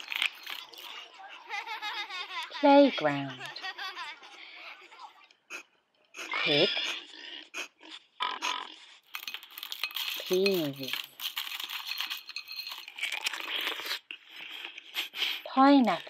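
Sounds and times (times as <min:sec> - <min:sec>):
crinkling and rattling: 0:00.0 - 0:03.9, 0:08.8 - 0:15.0
woman speaking: 0:02.5 - 0:03.7, 0:06.3 - 0:06.8, 0:10.2 - 0:11.0, 0:15.5 - 0:16.0.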